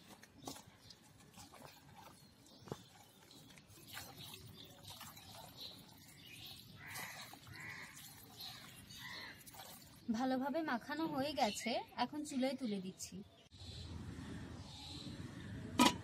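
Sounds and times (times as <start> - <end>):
wet squelching of meat: 0.0 - 10.1
clicks against metal pot: 15.8 - 16.0.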